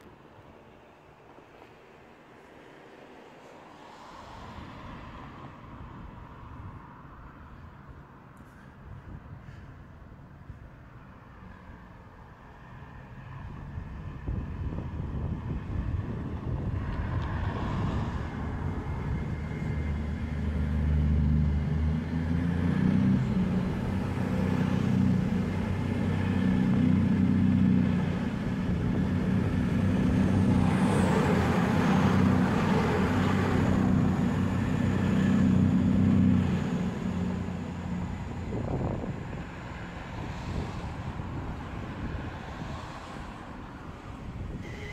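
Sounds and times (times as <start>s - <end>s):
train passing drone: 0.0s - 44.9s
rush of train wheel noise: 12.8s - 44.9s.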